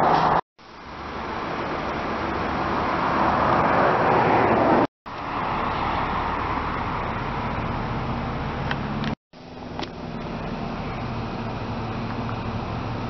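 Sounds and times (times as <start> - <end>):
car engine idling: 5.1 - 13.0.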